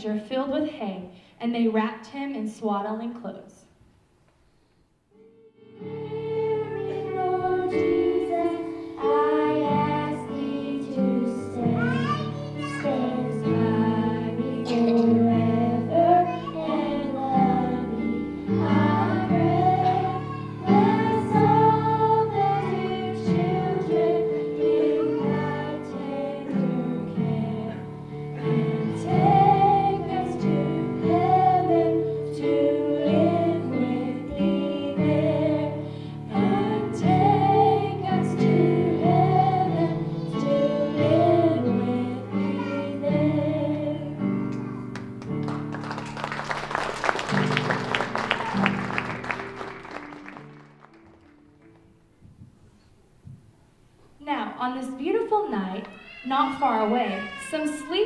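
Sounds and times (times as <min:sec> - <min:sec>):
girls singing into microphones: 0:05.2 - 0:44.4.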